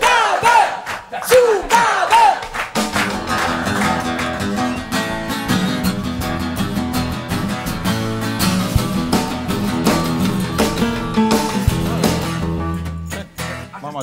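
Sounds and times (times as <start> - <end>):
audience shouting and whooping: 0.0 - 2.5
acoustic guitar strumming: 2.7 - 14.0.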